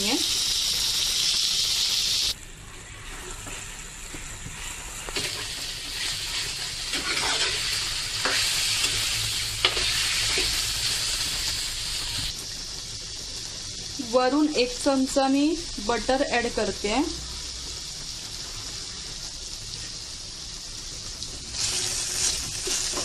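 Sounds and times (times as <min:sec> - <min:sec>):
chicken sizzling in oil: 0:00.0 - 0:23.0
spatula scraping pan: 0:02.9 - 0:10.6.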